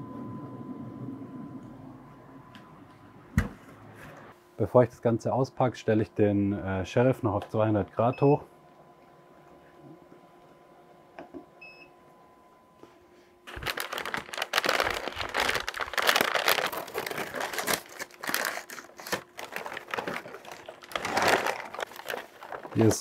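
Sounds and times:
paper wrapping crinkling: 13.5s - 23.0s.

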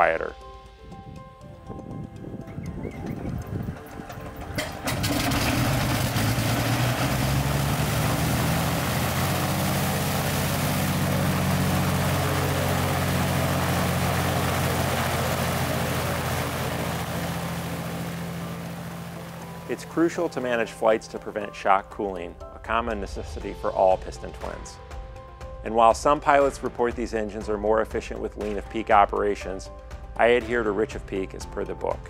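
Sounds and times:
aircraft engine cranking and running: 0.4s - 22.5s.

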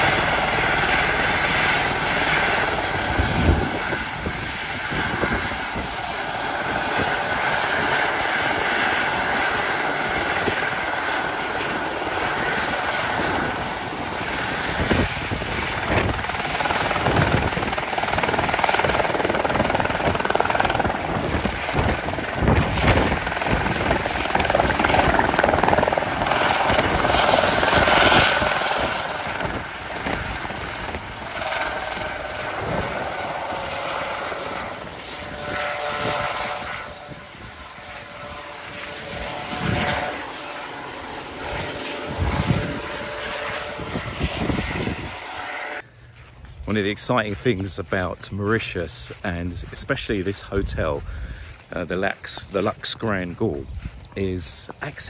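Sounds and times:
helicopter turbine whine and rotor chop: 0.0s - 55.0s.

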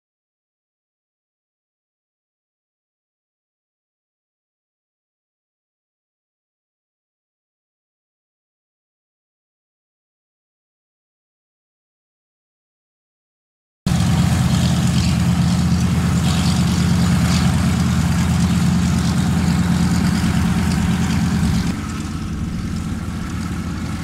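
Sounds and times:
radial engines idling: 13.9s - 24.0s.

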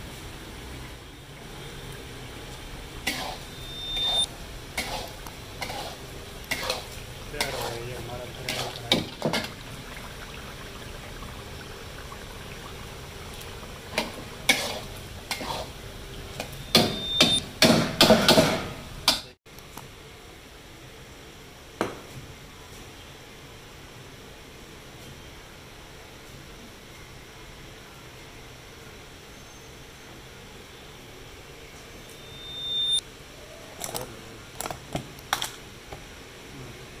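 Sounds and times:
high-pitched beep: 3.4s - 4.3s, 16.6s - 17.4s, 32.1s - 33.0s.

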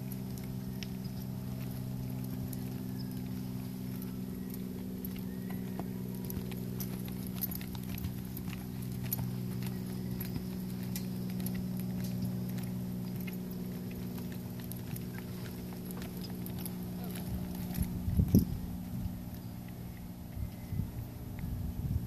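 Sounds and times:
hoofbeats on soft dirt: 0.0s - 22.0s
steady low hum: 0.0s - 22.0s.

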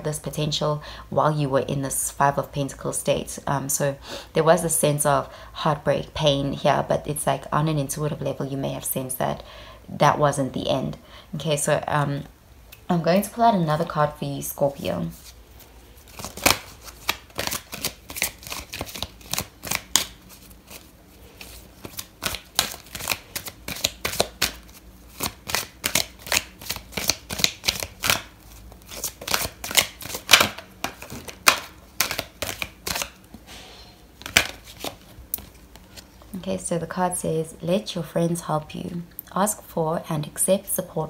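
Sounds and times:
cards being shuffled: 15.1s - 33.3s, 34.2s - 36.3s.

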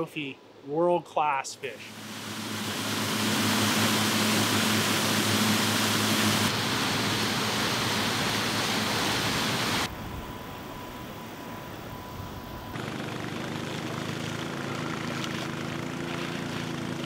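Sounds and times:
water spraying and splashing: 1.9s - 9.9s, 12.8s - 17.0s
low motor hum: 1.9s - 17.0s.

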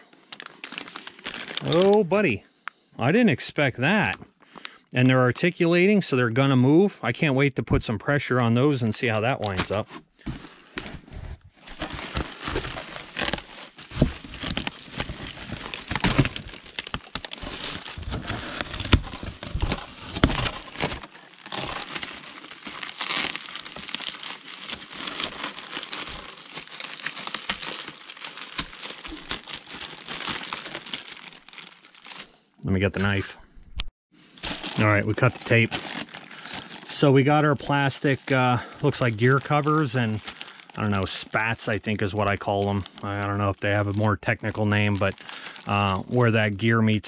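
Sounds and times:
bubble wrap crinkling: 0.3s - 2.1s, 9.7s - 32.4s, 34.2s - 46.3s.

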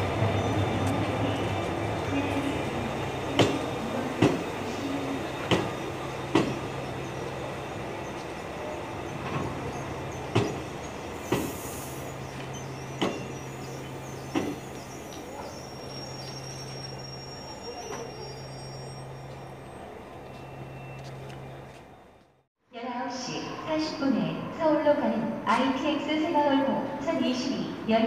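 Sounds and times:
wheels clacking over rail joints: 12.3s - 15.5s.

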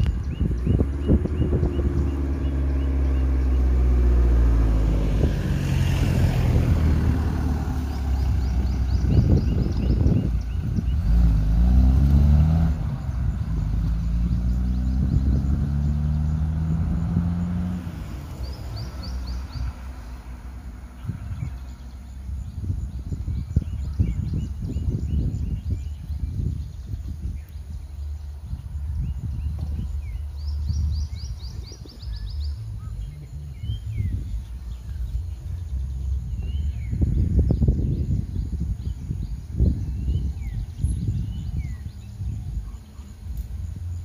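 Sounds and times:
car engines at low speed: 0.0s - 44.0s
faint bird chirps: 20.9s - 44.0s.

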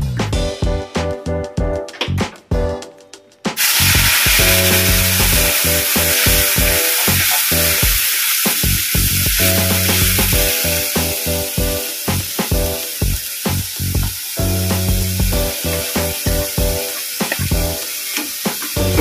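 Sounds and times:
background music with steady beat: 0.0s - 19.0s
spice paste sizzling in oil: 3.6s - 19.0s.

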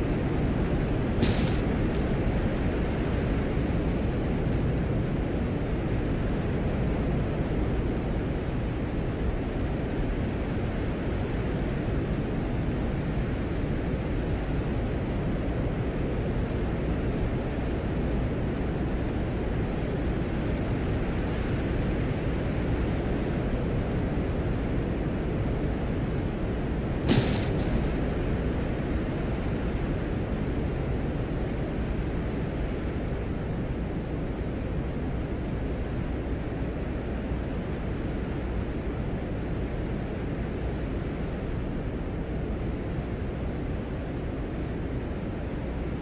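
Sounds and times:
low rumbling noise: 0.0s - 11.0s, 25.8s - 36.0s
steady low rumbling noise: 0.0s - 46.0s.

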